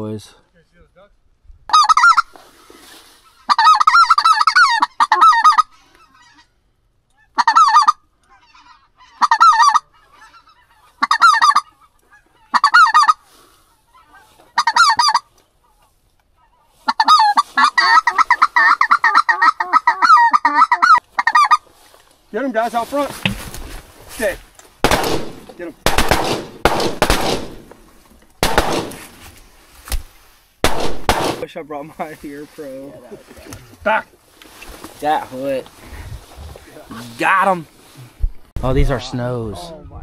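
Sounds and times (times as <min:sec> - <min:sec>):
goose call honks and clucks: 0:01.7 - 0:02.4, 0:03.2 - 0:21.7.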